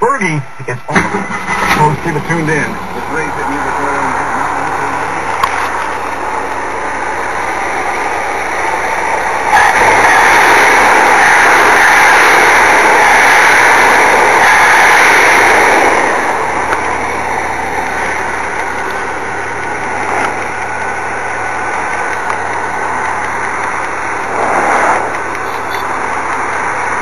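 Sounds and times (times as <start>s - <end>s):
car engine idling: 0.0s - 27.0s.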